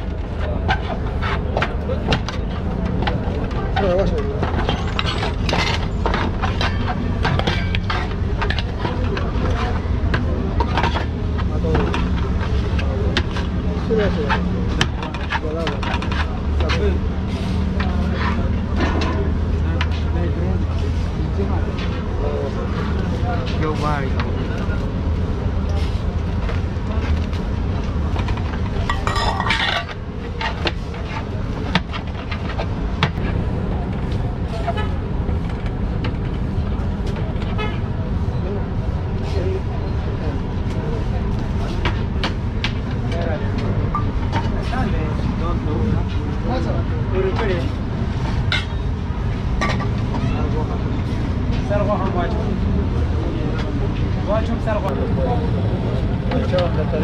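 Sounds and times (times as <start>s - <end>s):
low traffic rumble: 0.0s - 57.0s
dishes and utensils clattering: 3.0s - 11.1s, 28.2s - 33.1s, 48.3s - 48.8s, 49.6s - 50.2s.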